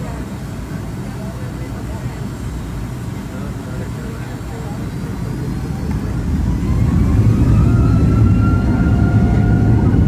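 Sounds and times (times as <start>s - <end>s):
airliner engines rumbling: 0.0s - 10.0s
thin whine rising in pitch: 5.0s - 10.0s.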